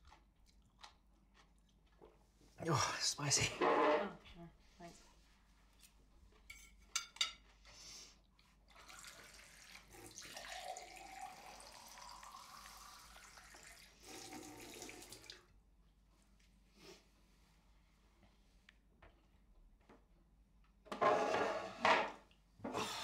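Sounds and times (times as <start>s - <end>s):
water tap running: 8.8s - 15.4s.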